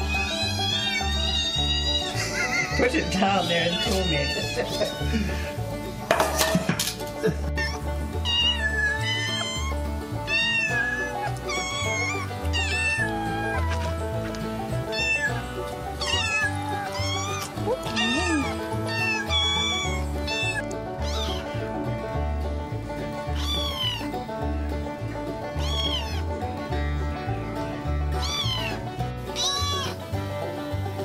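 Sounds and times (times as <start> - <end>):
kittens meowing: 0.0 - 2.8, 3.4 - 5.2, 7.5 - 13.9, 14.8 - 21.6, 23.2 - 24.1, 25.5 - 26.3, 28.2 - 30.0.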